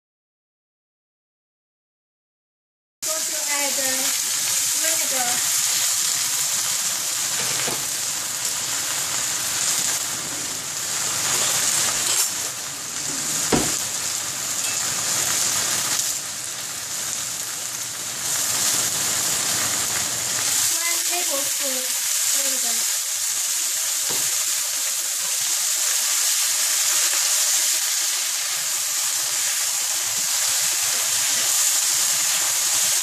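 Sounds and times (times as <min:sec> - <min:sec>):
cabbage sizzling in oil: 0:03.0 - 0:33.0
sharp knock: 0:13.5 - 0:13.8.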